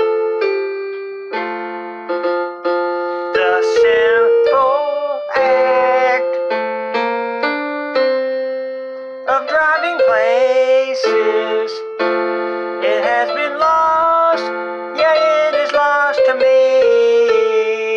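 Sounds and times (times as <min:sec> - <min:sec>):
keyboard chords: 0:00.0 - 0:17.9
man singing with vibrato: 0:03.2 - 0:06.6, 0:09.3 - 0:12.1, 0:12.8 - 0:17.9.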